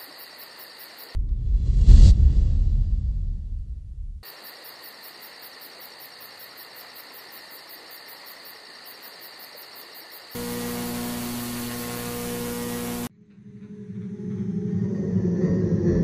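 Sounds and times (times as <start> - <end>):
crickets chirping: 0.0 - 1.2, 4.2 - 13.1
low rumble: 1.2 - 4.2
steady hiss: 4.2 - 13.1
electrical hum with static: 10.4 - 13.1.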